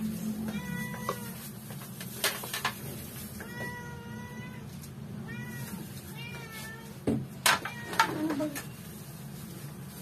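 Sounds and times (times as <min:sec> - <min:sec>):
cat meowing: 0:00.4 - 0:01.5, 0:03.3 - 0:08.8.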